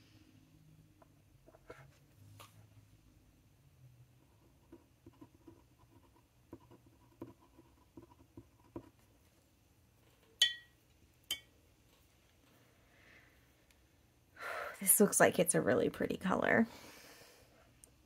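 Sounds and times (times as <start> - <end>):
pen scratching on paper: 4.2 - 9.1
glass clinks ringing: 10.4 - 11.5.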